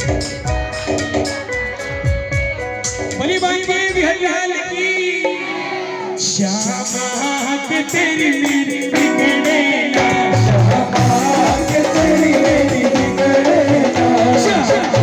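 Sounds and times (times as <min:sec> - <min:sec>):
steady percussion beat: 0:00.0 - 0:04.3, 0:06.5 - 0:15.0
amplified instrumental accompaniment: 0:00.0 - 0:15.0
man singing into a microphone: 0:03.2 - 0:05.4, 0:06.1 - 0:15.0.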